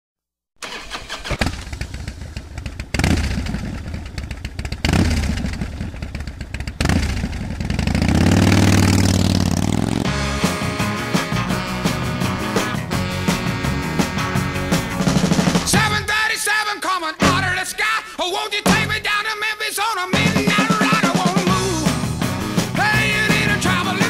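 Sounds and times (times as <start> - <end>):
motorcycle engine starting and revving: 0.6 - 16.1.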